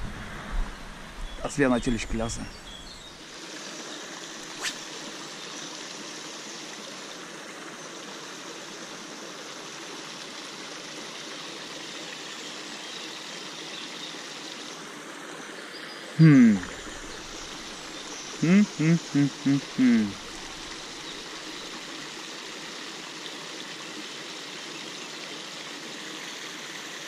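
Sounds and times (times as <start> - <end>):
water pouring into pond: 3.2 - 15.6, 16.2 - 27.0
person's vocal exclamation: 16.2 - 16.9, 18.4 - 20.3.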